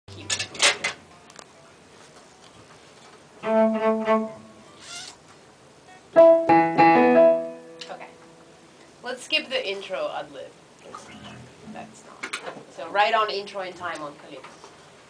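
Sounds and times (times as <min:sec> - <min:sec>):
bowed string chord: 0:03.4 - 0:04.7, 0:06.2 - 0:08.5
loud ringing chord: 0:06.2 - 0:08.6.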